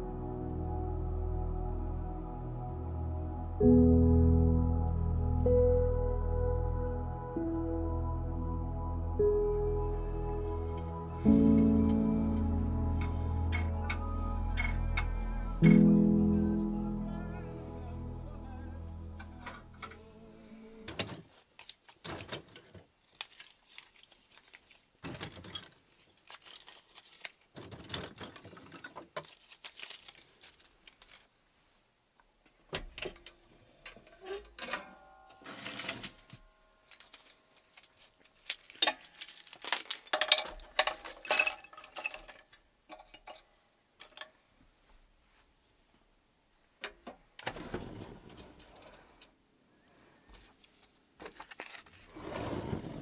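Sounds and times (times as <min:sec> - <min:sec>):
small objects clattering: 0:20.9 - 0:31.3, 0:34.6 - 0:44.4, 0:50.7 - 0:52.2.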